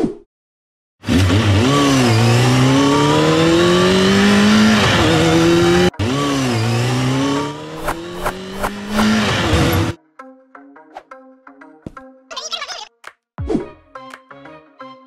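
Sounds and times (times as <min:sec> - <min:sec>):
dirt bike accelerating: 0:01.0 - 0:10.0.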